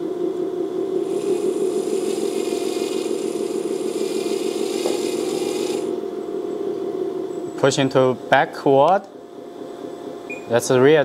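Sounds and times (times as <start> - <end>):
steady low hum: 0.0 - 11.0
electric motor and gearbox whirring: 1.0 - 6.0.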